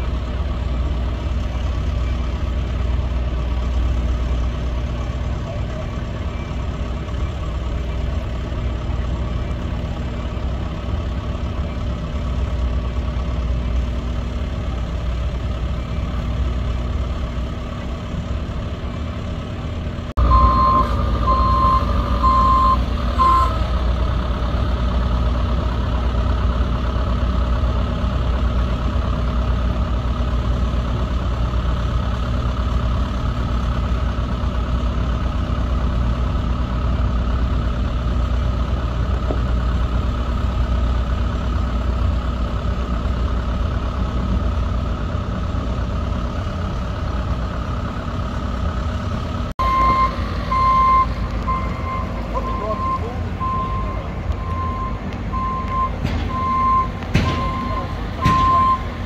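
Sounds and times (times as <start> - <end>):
heavy diesel machinery running: 0.0 - 59.0
reversing alarm beeps: 20.2 - 23.7, 49.6 - 58.9.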